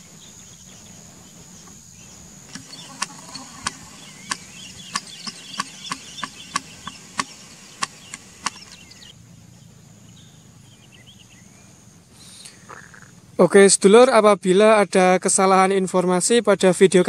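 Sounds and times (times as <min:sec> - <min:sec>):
faint bird chirps: 0:00.0 - 0:13.2
high insect drone: 0:00.0 - 0:13.4
sharp knocks: 0:02.5 - 0:08.8.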